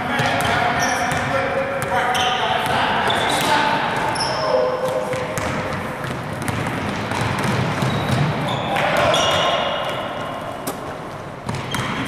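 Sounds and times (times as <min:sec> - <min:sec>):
basketball bouncing on court: 0:00.2 - 0:12.0
people calling out: 0:08.5 - 0:09.9.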